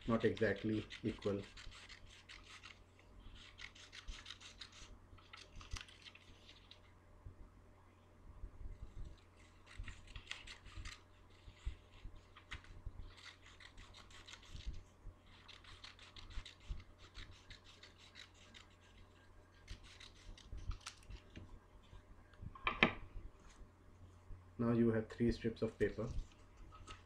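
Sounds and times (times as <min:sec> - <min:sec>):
scissors snipping paper: 0:00.0 - 0:02.8, 0:03.4 - 0:06.8, 0:09.4 - 0:11.5, 0:12.4 - 0:21.4.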